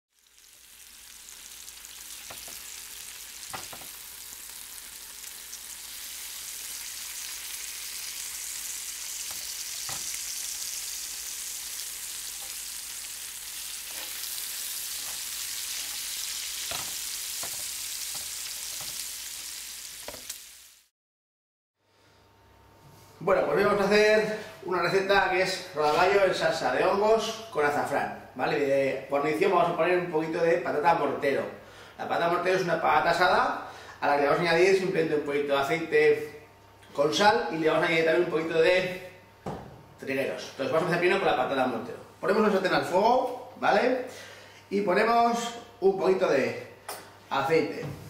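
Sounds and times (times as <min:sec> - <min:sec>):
food sizzling in hot oil: 0:00.1 - 0:20.9.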